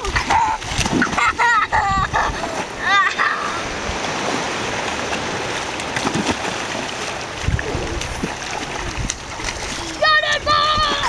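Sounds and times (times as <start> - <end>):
feet splashing through shallow water: 0.0 - 11.0
steady wash of water: 0.0 - 11.0
dull water thumps: 3.9 - 11.0.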